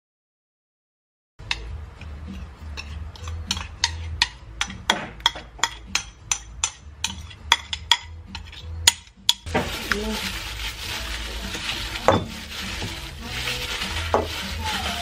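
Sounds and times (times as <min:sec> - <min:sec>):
spoon scraping and tapping bowl: 0:01.4 - 0:09.5.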